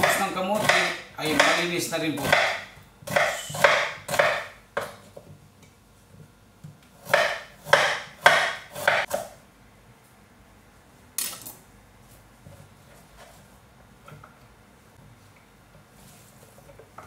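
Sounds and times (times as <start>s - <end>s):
knife cutting on wooden board: 2.2s - 4.4s.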